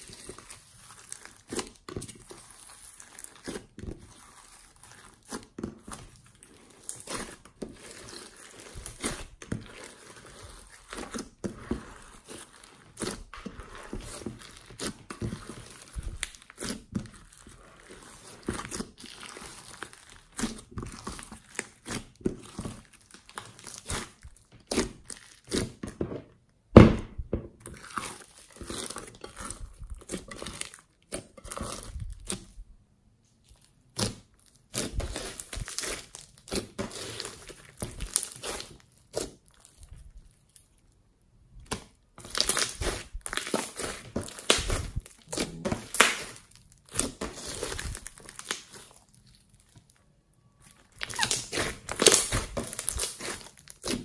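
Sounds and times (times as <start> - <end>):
slime squishing and crackling: 0.0 - 26.1, 26.8 - 32.6, 33.4 - 41.0, 41.6 - 54.0
slime popping: 41.6 - 49.0, 50.9 - 54.0.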